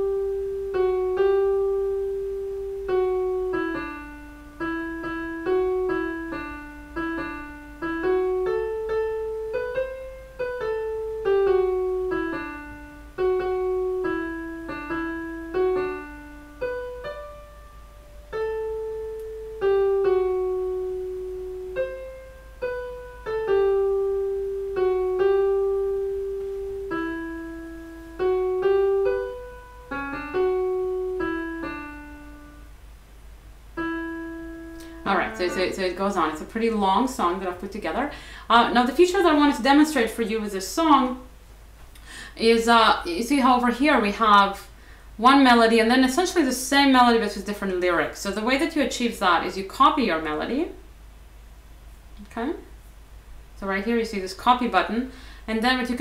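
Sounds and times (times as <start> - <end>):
piano melody: 0.0 - 38.0.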